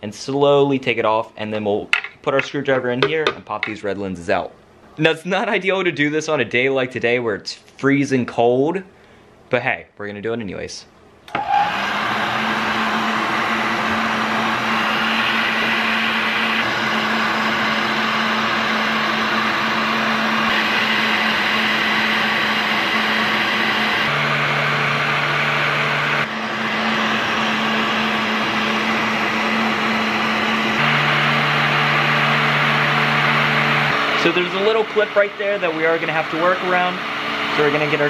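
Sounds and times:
heat gun blowing air: 11.3 - 38.0.

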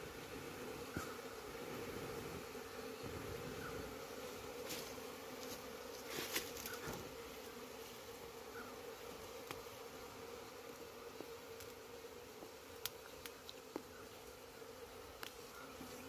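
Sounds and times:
bees buzzing: 0.0 - 16.0
rustling leaves: 4.3 - 7.0.

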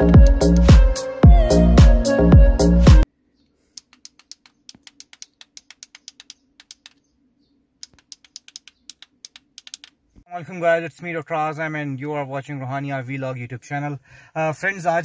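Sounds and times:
remote control buttons clicking: 3.8 - 7.0, 7.8 - 10.0.

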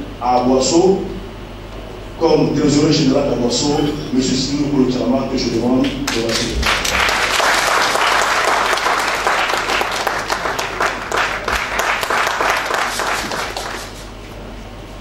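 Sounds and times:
audience applauding: 6.1 - 14.1.

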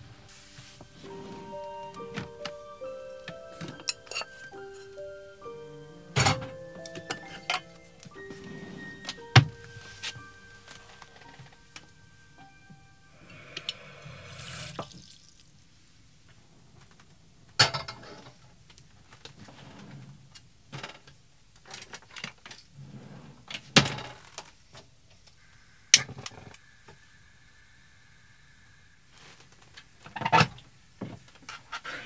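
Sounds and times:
steady high tone: 0.0 - 14.8.

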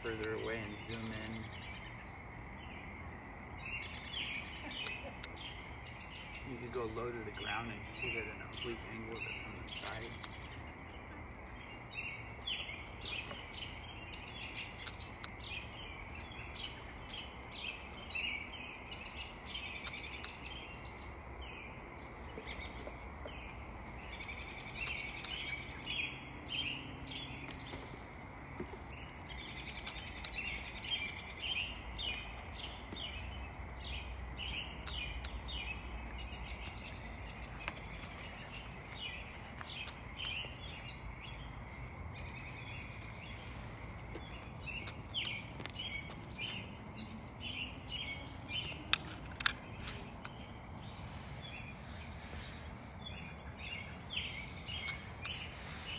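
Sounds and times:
birds chirping: 0.0 - 55.9
low outdoor background noise: 0.0 - 55.9
sharp clicks: 0.1 - 0.5, 9.8 - 10.5, 14.8 - 15.4, 19.7 - 20.4, 24.8 - 25.4, 29.3 - 30.6, 34.8 - 35.4, 44.7 - 45.8.

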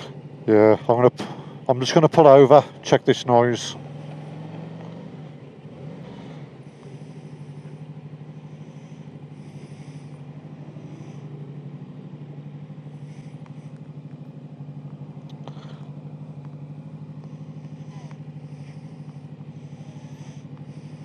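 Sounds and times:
motorcycle engine idling: 0.0 - 21.0
faint clicks: 13.4 - 14.2, 16.4 - 16.6.

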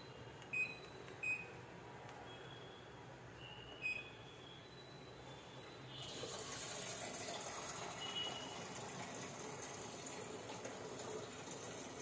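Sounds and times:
water pouring into washing machine: 6.1 - 12.0.

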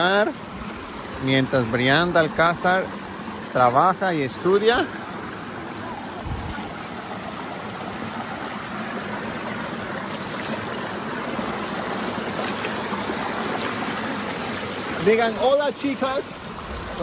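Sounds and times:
creek rushing over rocks: 0.0 - 17.0.

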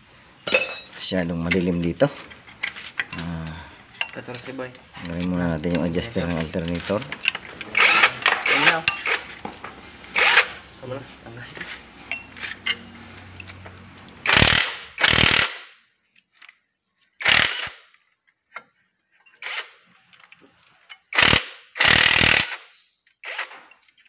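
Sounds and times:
power tool short bursts: 14.2 - 15.6, 21.2 - 22.6.

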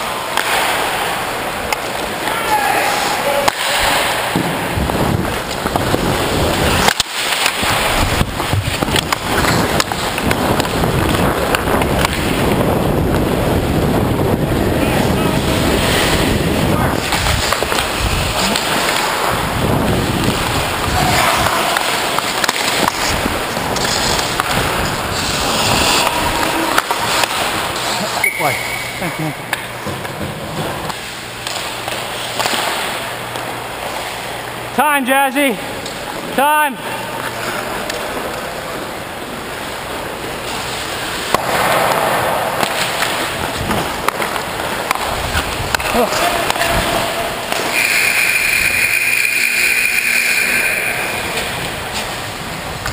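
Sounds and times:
hockey sticks and puck clacking: 0.0 - 13.3, 15.0 - 19.5, 20.2 - 34.5, 37.1 - 52.9
skate blades scraping on ice: 4.8 - 12.6, 15.0 - 28.2, 37.3 - 52.9.

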